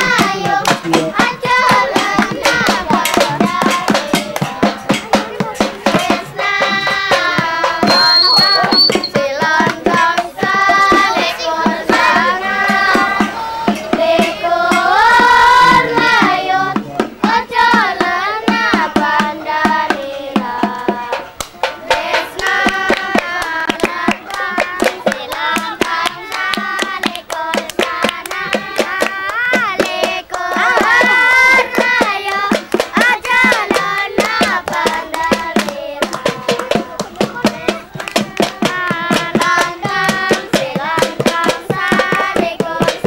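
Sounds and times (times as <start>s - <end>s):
fast hand percussion: 0.0s - 43.0s
voices singing: 0.0s - 43.0s
sharp clicks and claps: 20.7s - 43.0s.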